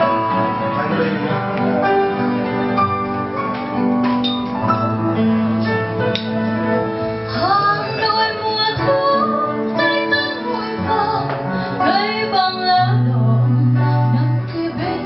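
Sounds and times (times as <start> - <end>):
acoustic guitar: 0.0 - 15.0
woman singing a slow ballad: 7.3 - 15.0.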